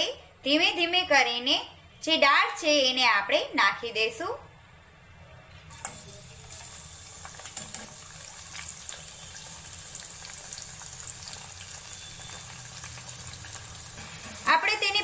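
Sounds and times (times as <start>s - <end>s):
deep-frying sizzle with pops: 5.7s - 15.0s.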